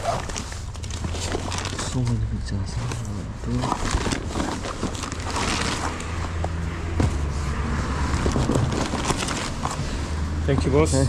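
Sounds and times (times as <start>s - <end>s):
foil bag crinkling: 0.0s - 2.0s, 3.5s - 6.2s, 8.5s - 9.7s.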